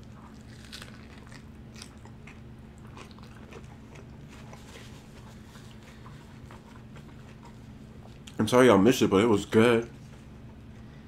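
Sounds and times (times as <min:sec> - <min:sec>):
lettuce crunching: 0:00.0 - 0:08.4
low steady hum: 0:00.0 - 0:11.0
chewing clicks: 0:00.2 - 0:04.6.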